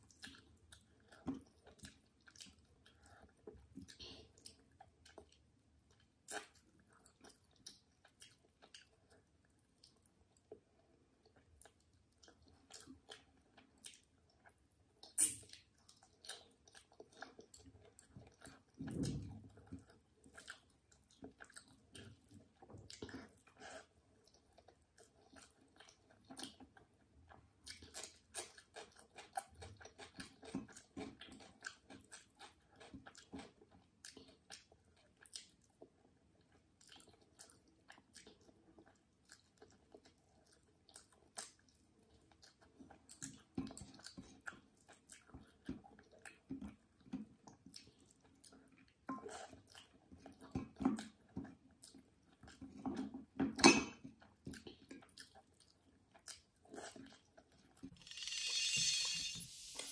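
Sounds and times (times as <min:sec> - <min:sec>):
person chewing food: 0:00.0 - 0:53.4, 0:54.0 - 0:59.9.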